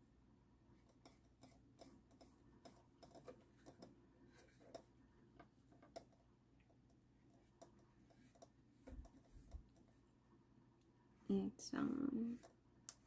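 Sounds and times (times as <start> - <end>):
paintbrush ticks and clicks: 0.8 - 4.9, 12.3 - 13.0.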